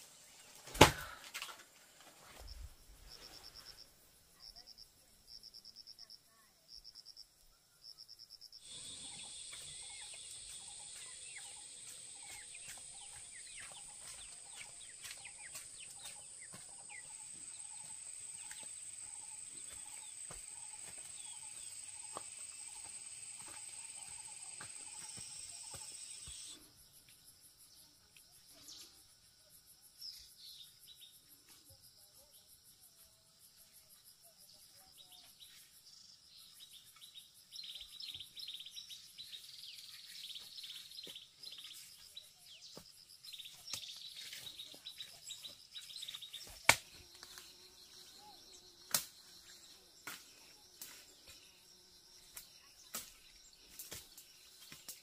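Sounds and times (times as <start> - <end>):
insect chorus: 0.0 - 55.0
birds chirping: 8.6 - 26.6.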